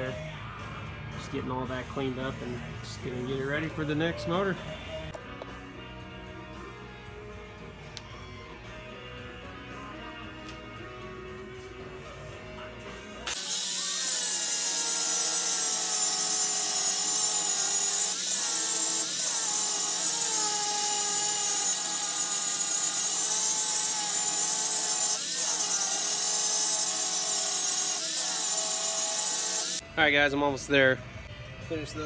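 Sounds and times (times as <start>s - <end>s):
electric grinder grinding metal: 13.2s - 29.8s.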